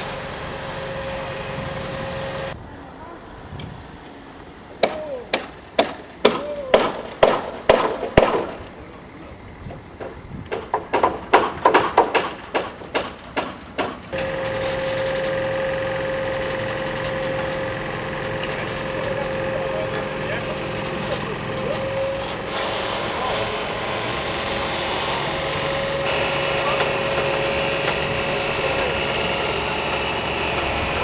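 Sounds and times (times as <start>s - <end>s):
crane engine drone with whine: 0.0s - 5.8s, 14.1s - 31.0s.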